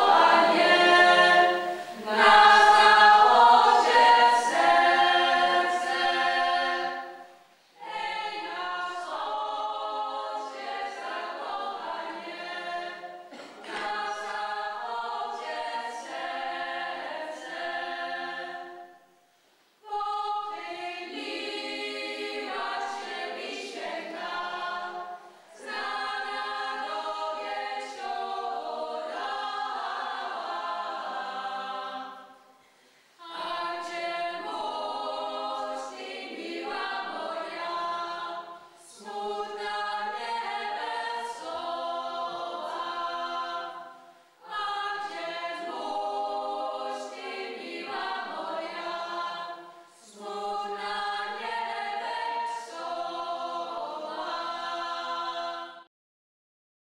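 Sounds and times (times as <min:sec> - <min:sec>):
choir singing unaccompanied: 0:00.0 - 0:19.2, 0:19.8 - 0:32.6, 0:33.2 - 0:55.9.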